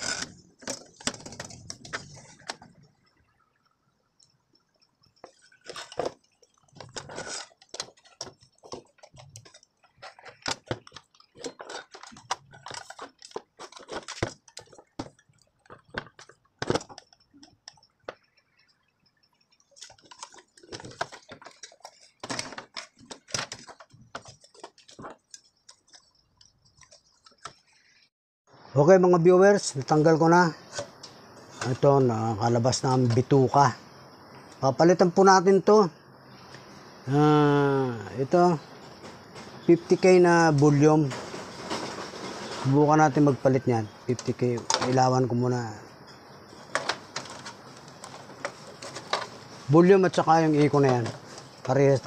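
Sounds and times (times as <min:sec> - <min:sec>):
clicks and rattles of wire connectors: 0:00.0 - 0:02.7, 0:05.1 - 0:18.4, 0:19.7 - 0:27.6, 0:38.9 - 0:45.8, 0:46.5 - 0:52.0.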